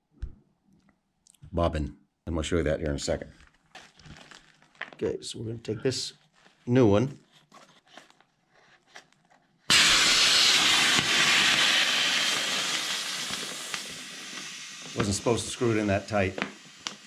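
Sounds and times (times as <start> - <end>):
loud hiss of gas rushing: 9.7 - 17.0.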